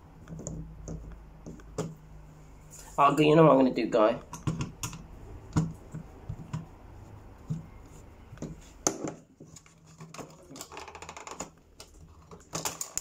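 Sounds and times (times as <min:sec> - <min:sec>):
small clicks and scrapes: 0:07.4 - 0:13.0.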